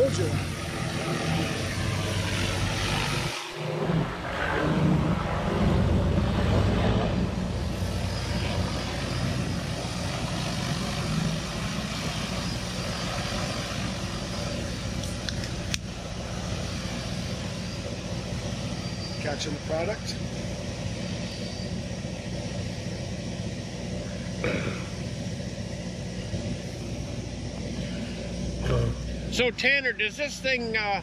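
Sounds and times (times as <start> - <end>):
drone propellers humming: 0.0 - 31.0.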